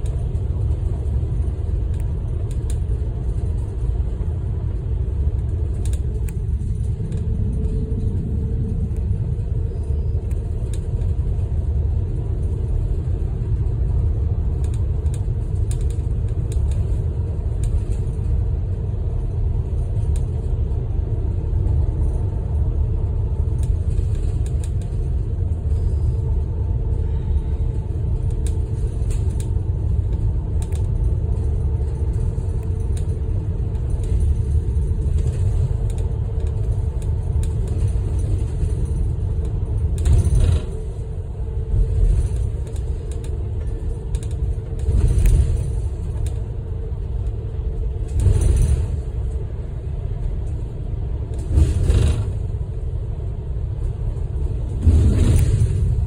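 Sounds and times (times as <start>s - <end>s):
bus road and engine rumble: 0.0s - 56.0s
rattle: 23.4s - 49.5s, 51.3s - 52.7s.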